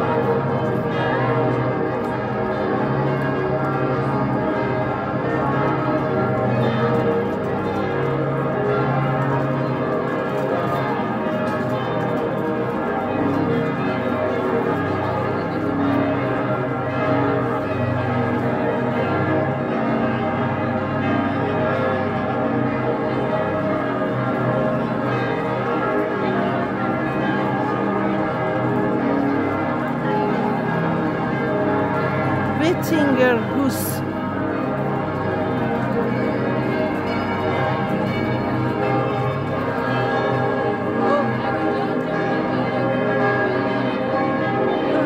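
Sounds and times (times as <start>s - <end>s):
church bells pealing: 0.0s - 45.0s.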